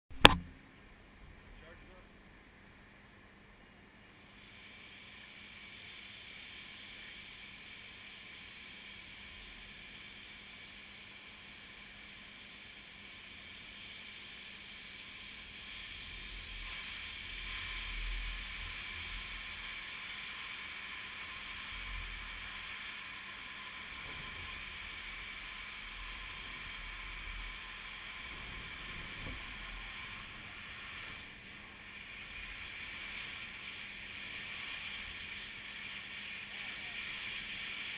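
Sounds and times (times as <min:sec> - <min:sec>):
steady hiss: 0:00.2 - 0:37.9
flash fire flames rushing: 0:27.8 - 0:36.4.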